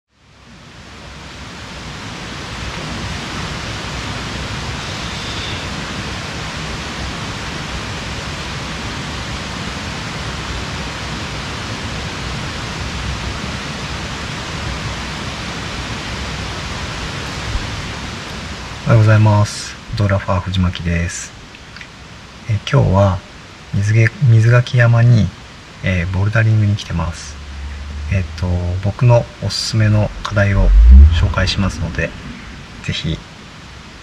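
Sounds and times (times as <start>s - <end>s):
steady rushing noise: 25.7s - 34.0s.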